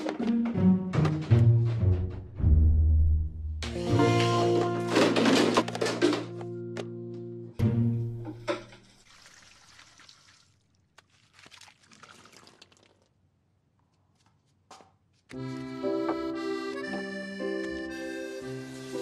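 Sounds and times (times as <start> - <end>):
soft instrumental music: 0.0 - 8.5, 15.3 - 19.0.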